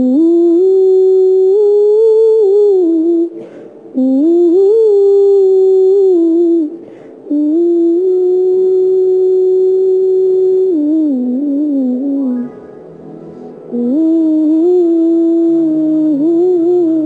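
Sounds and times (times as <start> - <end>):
faint high whine: 0.0 - 17.0
quick breath: 3.4 - 3.8, 6.8 - 7.2.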